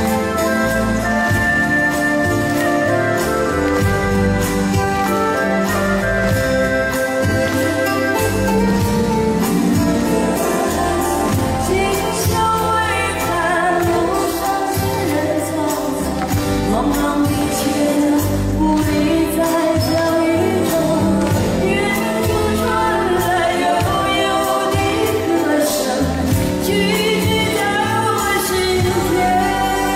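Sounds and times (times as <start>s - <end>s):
live band accompaniment: 0.0s - 29.9s
woman singing into microphone: 10.0s - 29.9s.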